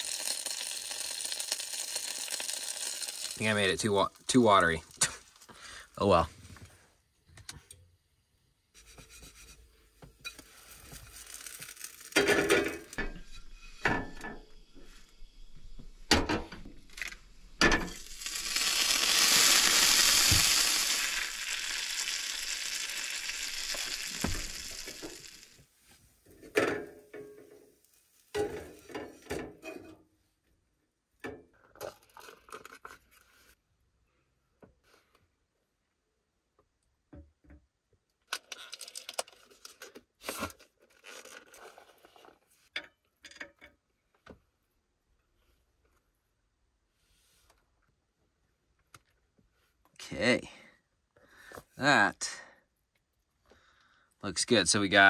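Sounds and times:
batter sizzling in hot pan: 0.0s - 5.2s, 10.2s - 15.7s, 17.4s - 25.7s.

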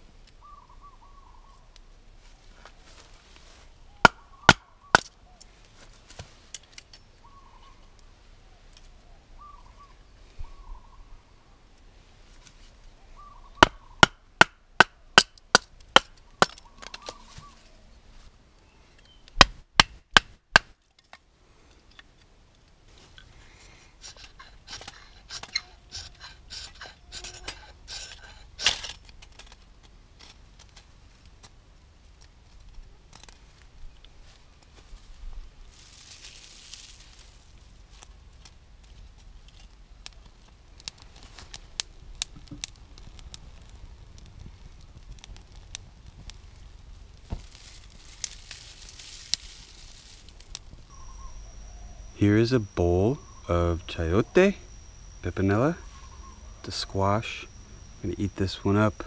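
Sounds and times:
wood crackling and scraping: 20.8s - 59.0s.

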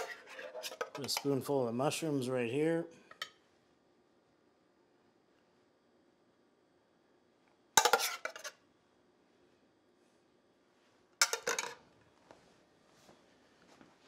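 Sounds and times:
metal spoon scraping dishware: 0.0s - 1.1s, 7.8s - 8.6s.

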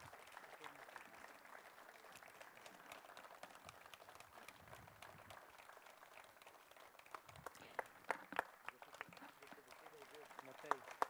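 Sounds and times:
audience applauding: 0.0s - 11.0s
single hand claps: 7.0s - 11.0s.

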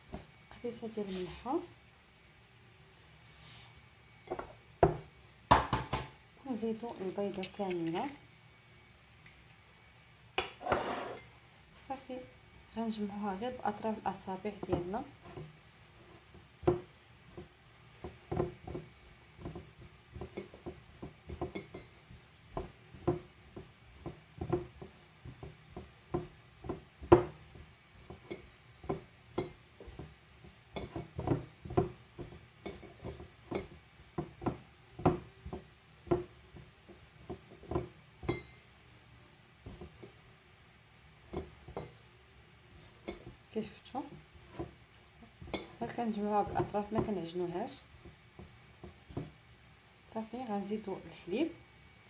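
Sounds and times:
dough knocking against glass bowl: 4.3s - 6.1s, 16.3s - 38.6s, 39.6s - 40.2s, 41.2s - 42.0s, 42.8s - 43.4s, 44.0s - 49.4s.

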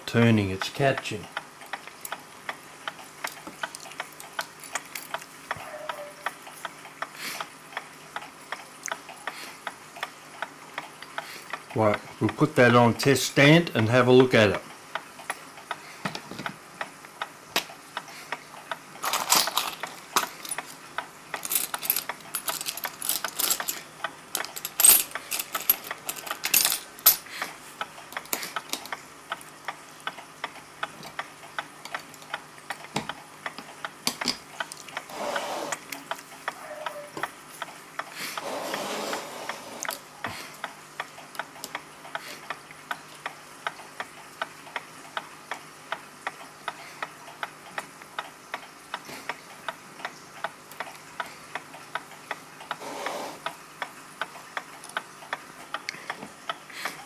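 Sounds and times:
clicks and rattles of small tools: 3.2s - 5.7s, 19.0s - 27.3s, 28.1s - 29.0s.

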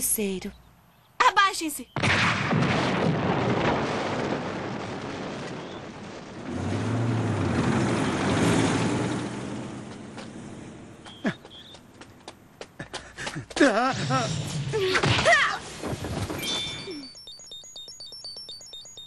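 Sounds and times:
cartoon explosion with rumble: 2.0s - 8.8s.

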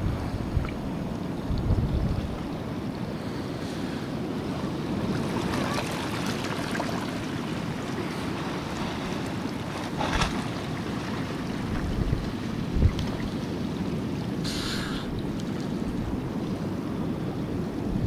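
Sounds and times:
wind noise on microphone: 0.0s - 2.7s, 11.6s - 13.4s, 17.5s - 18.0s
moving water: 0.0s - 18.0s
short hissing burst: 14.4s - 15.1s.

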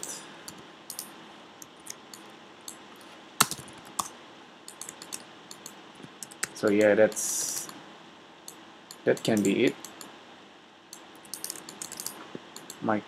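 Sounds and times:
keyboard and mouse clicks: 0.0s - 1.1s, 3.4s - 4.1s, 4.7s - 7.8s, 10.9s - 12.8s.

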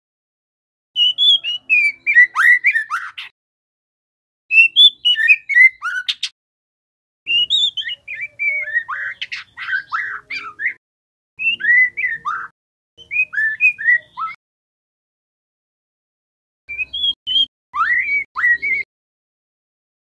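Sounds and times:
bird singing whistled notes: 1.0s - 3.3s, 4.5s - 6.3s, 7.3s - 10.8s, 11.4s - 14.4s, 16.7s - 18.9s.

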